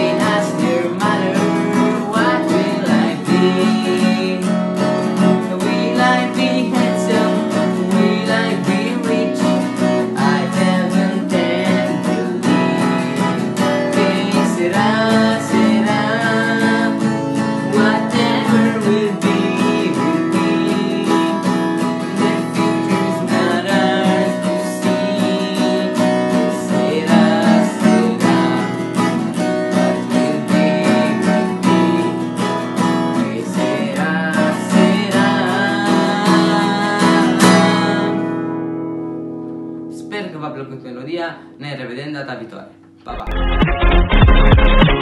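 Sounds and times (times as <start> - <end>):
man singing: 0.0 - 38.6
acoustic guitar strumming: 0.0 - 45.0.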